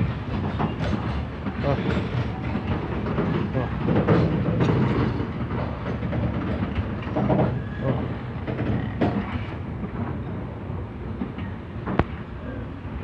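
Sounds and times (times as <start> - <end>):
train wheels rumbling on rail: 0.0 - 13.0
wheels clacking over rail joints: 0.0 - 13.0.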